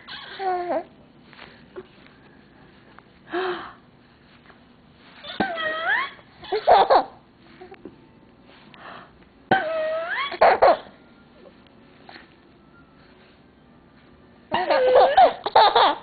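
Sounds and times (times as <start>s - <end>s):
baby squealing: 0.0s - 0.8s, 5.2s - 7.1s, 9.6s - 10.9s, 14.5s - 16.0s
baby giggling: 5.3s - 7.2s, 9.6s - 10.9s, 14.5s - 16.0s.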